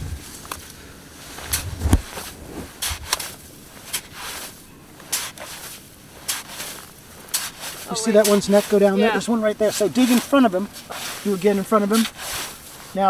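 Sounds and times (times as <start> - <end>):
rake scraping wet sand and shell: 0.0 - 13.0
dull thump: 1.5 - 3.1.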